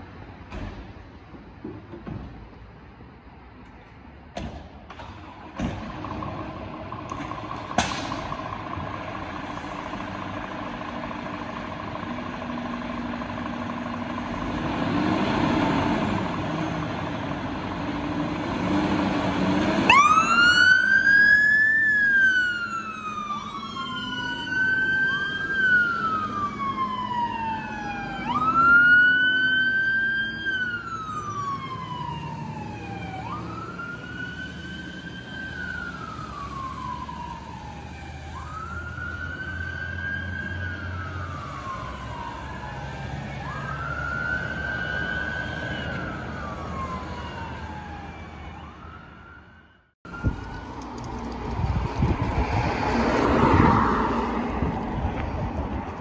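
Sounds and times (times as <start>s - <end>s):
diesel engines running: 0.0s - 49.3s, 50.1s - 56.0s
second siren wailing: 19.8s - 51.0s
siren wailing: 19.8s - 51.0s.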